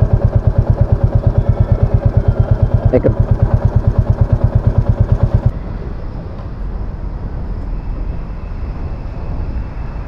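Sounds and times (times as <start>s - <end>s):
motorcycle engine idling: 0.0s - 5.5s
low rumble of road noise: 0.0s - 10.0s.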